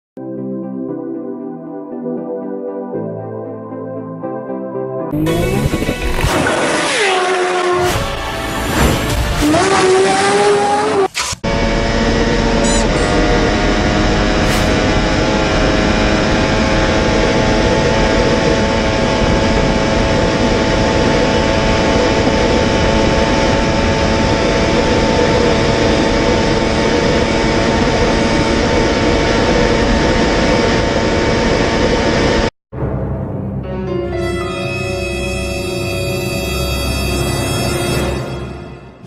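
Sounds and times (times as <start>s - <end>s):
motorcycle engine at high rpm: 5.1s - 8.4s, 9.4s - 32.5s.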